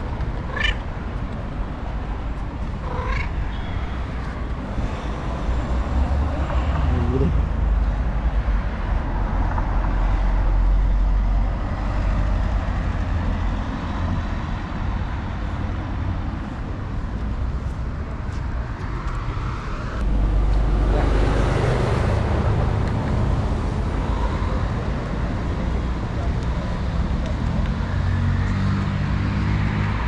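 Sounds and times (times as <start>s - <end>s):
rumble of cars on road: 0.0s - 30.0s
vehicle passing: 2.7s - 14.1s, 19.0s - 24.8s.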